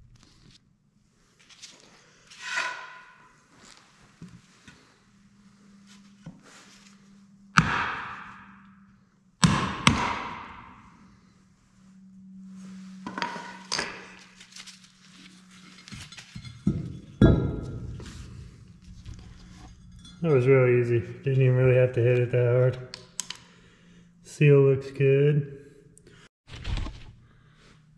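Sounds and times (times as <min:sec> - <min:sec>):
hammer striking wooden block: 0:07.6 - 0:08.6, 0:09.4 - 0:10.7.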